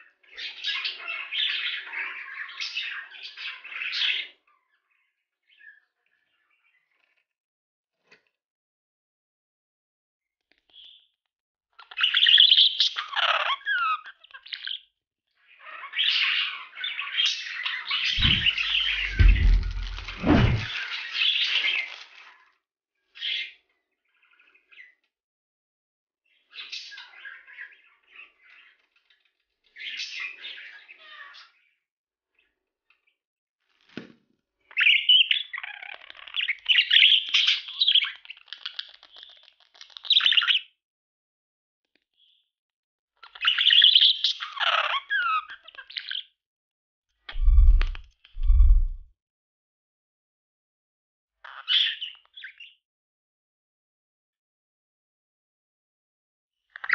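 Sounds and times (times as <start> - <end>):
soft thump: 18.2 - 20.7, 47.4 - 49.1.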